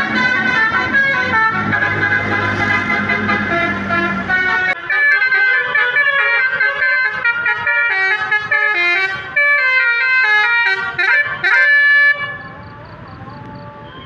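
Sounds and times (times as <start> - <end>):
car horn playing a melody: 0.0 - 12.5, 13.8 - 14.0.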